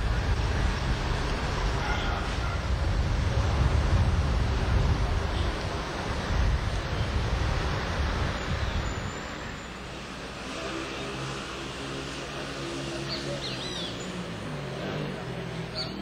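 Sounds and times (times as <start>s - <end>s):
wind buffeting the microphone: 0.0s - 9.5s
steady engine drone: 0.0s - 16.0s.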